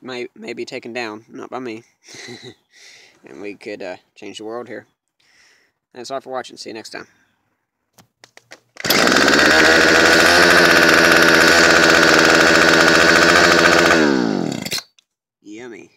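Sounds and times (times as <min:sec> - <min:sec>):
string trimmer engine revving: 0:08.8 - 0:14.8.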